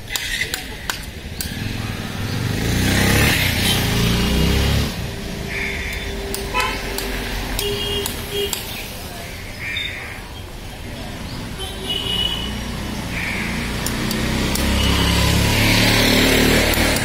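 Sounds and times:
steady engine hum: 0.0s - 17.0s
vehicle engine passing: 1.4s - 7.6s, 12.4s - 17.0s.

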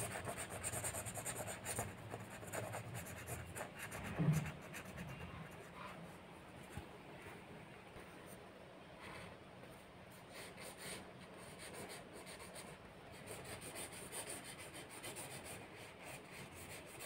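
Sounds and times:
pen scratching on paper: 0.0s - 6.0s, 10.3s - 17.0s.

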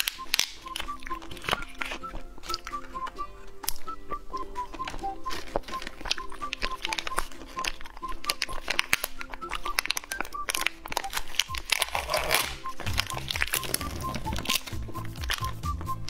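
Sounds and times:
packaging tearing: 0.0s - 3.0s, 3.6s - 15.8s
background music: 0.0s - 16.0s
plastic packaging crinkling: 0.0s - 16.0s
bass line: 12.1s - 16.0s.

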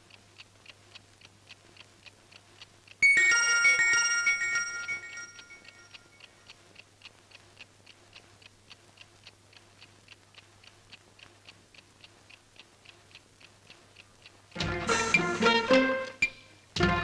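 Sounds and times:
alarm clock ticking: 0.1s - 17.0s
bright ringing chime: 3.0s - 6.2s.

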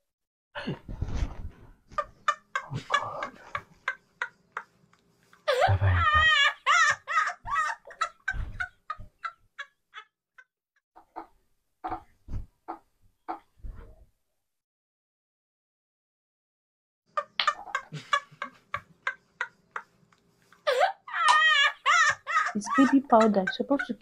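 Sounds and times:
high-pitched cackling laughter: 5.4s - 10.1s, 20.6s - 24.0s.

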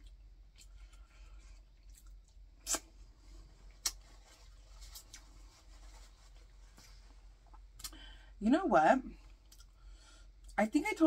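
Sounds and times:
wet chewing smacks and clicks: 0.0s - 3.0s, 3.7s - 4.1s.

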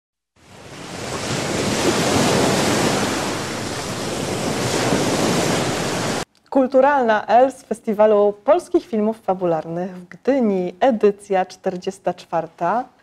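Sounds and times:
steady rushing noise: 1.4s - 6.2s.

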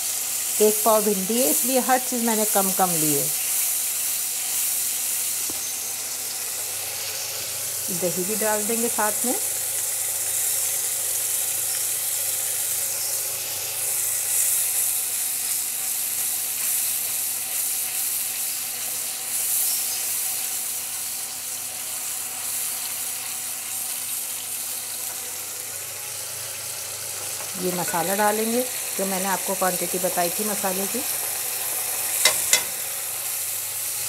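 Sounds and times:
masala sizzling in oil: 0.0s - 34.0s.

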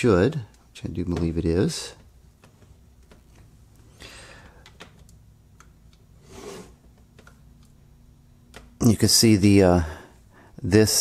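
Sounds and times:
person breathing softly: 3.9s - 4.7s, 9.8s - 10.6s.

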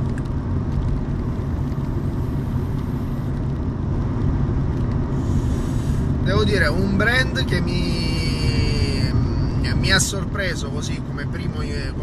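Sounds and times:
car road and engine rumble: 0.0s - 12.0s
breathy hiss of exhaled vapour: 5.1s - 6.1s.

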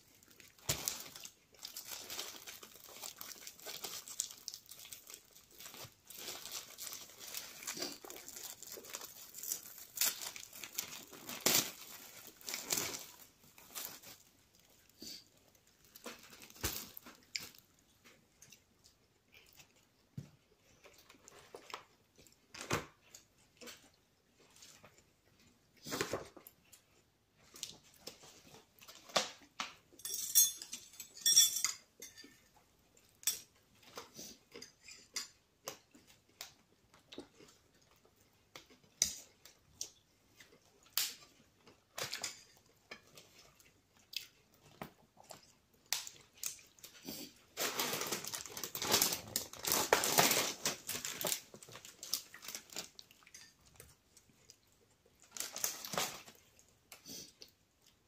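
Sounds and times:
plastic packet crackling: 0.2s - 14.3s, 47.6s - 53.1s, 55.2s - 56.4s.

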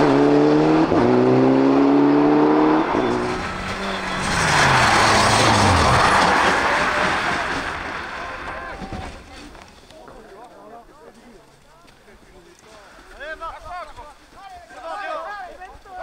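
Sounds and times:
rally car engine revving: 0.0s - 8.7s
rally car passing by: 0.0s - 8.8s.

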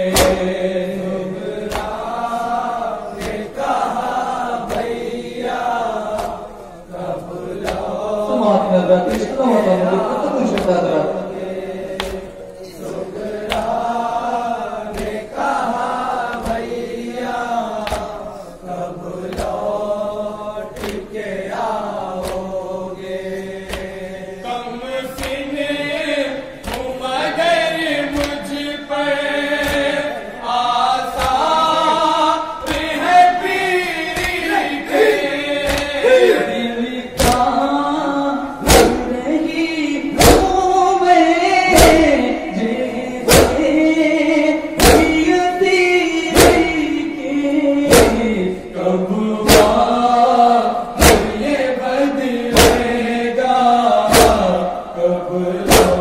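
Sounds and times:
men chanting over microphones: 0.0s - 56.0s
palms slapping chests: 35.6s - 36.0s, 37.2s - 37.6s, 38.6s - 39.2s, 40.2s - 40.6s, 41.7s - 42.2s, 43.3s - 43.8s, 44.8s - 45.4s, 46.3s - 46.9s, 47.9s - 48.3s, 49.5s - 50.0s, 51.0s - 51.6s, 52.5s - 53.1s, 54.1s - 54.6s, 55.7s - 56.0s.

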